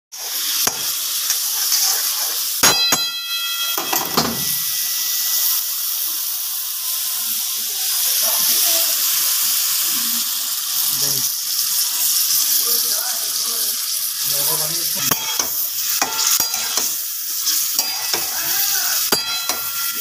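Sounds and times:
meat sizzling in a pan: 0:00.1 - 0:20.0
metal ladle clanking on pan: 0:02.6 - 0:04.4, 0:15.0 - 0:17.0, 0:19.1 - 0:19.9
pan ringing: 0:02.6 - 0:05.4, 0:19.1 - 0:20.0.

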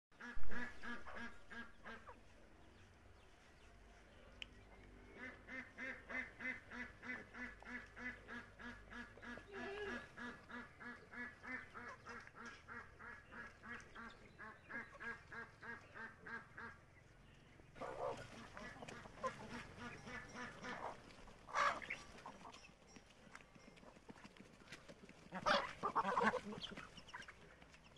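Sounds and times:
ducks quacking: 0:00.2 - 0:02.4, 0:05.0 - 0:17.0, 0:17.8 - 0:22.7, 0:24.8 - 0:27.9.

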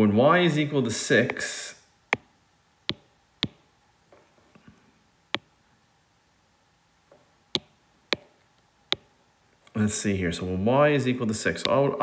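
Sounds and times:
stylus tapping on tablet screen: 0:02.9 - 0:03.6, 0:05.3 - 0:05.5, 0:07.6 - 0:09.1.

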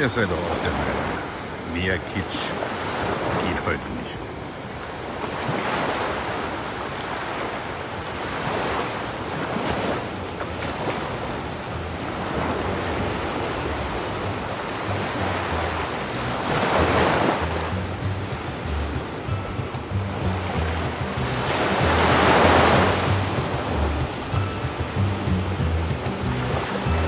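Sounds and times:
sea waves washing onto beach: 0:00.0 - 0:27.0
wind rumble on microphone: 0:10.0 - 0:27.0.

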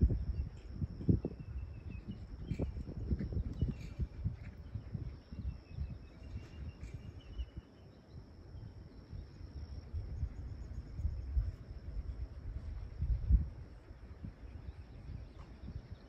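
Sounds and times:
high insect trill: 0:00.0 - 0:15.9
wind rumble on microphone: 0:00.0 - 0:16.0
faint bird chirps: 0:00.1 - 0:11.6.

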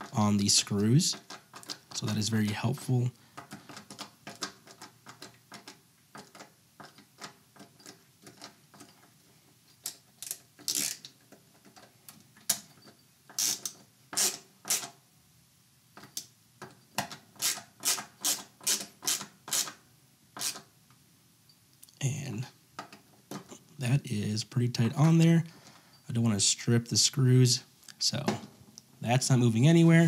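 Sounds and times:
screwdriver ratchet clicking: 0:10.2 - 0:11.1, 0:13.3 - 0:14.9, 0:17.4 - 0:19.8, 0:20.4 - 0:20.6.

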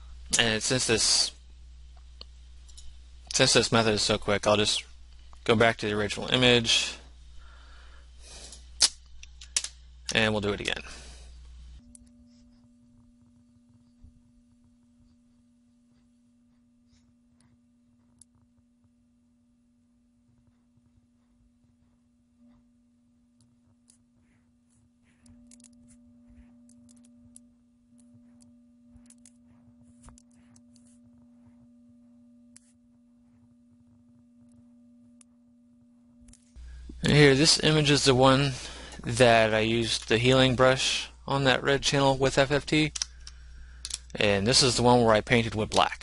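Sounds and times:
faint electrical hum: 0:00.0 - 0:46.0
computer mouse clicks: 0:25.2 - 0:25.8, 0:29.0 - 0:29.4, 0:30.0 - 0:30.9.

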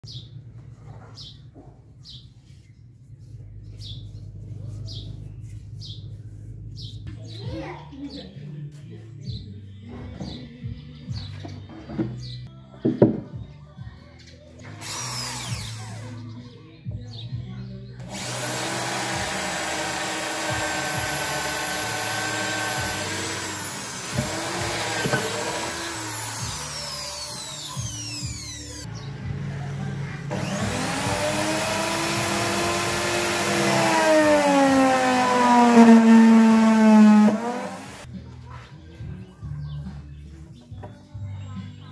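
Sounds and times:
bird chirping: 0:03.6 - 0:08.5
electric drill boring into wood: 0:14.8 - 0:16.1, 0:18.0 - 0:28.9, 0:30.3 - 0:38.1.

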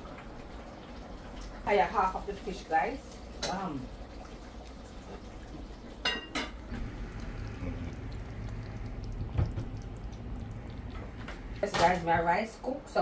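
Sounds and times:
low steady hum: 0:00.0 - 0:13.0
cookware clinking: 0:06.0 - 0:06.7.

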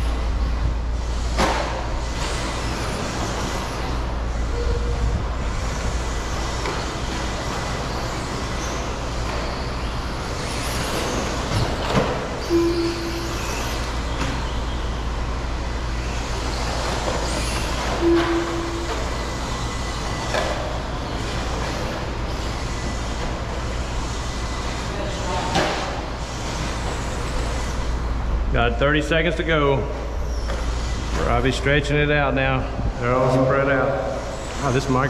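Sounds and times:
electric rc trucks running: 0:00.0 - 0:28.4, 0:30.0 - 0:32.2, 0:33.0 - 0:35.0
rushing background noise: 0:00.0 - 0:35.0
short beeps: 0:12.5 - 0:13.6, 0:18.0 - 0:19.0.

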